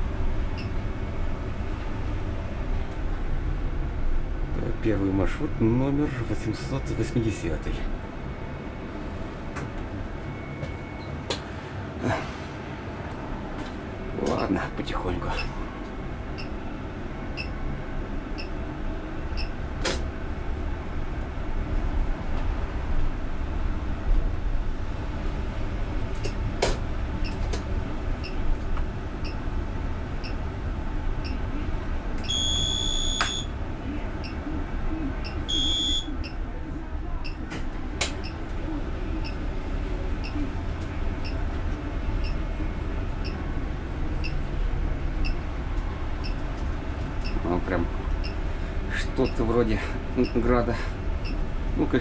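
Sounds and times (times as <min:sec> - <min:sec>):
trolleybus running rumble: 0:00.0 - 0:32.4, 0:36.2 - 0:52.0
electronic beeps: 0:32.2 - 0:33.5, 0:35.2 - 0:36.4.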